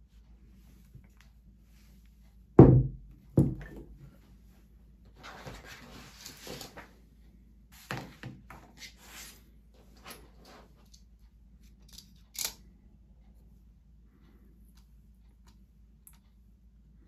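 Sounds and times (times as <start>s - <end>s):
knock on table: 2.6s - 3.8s
paper rustling: 5.2s - 6.9s.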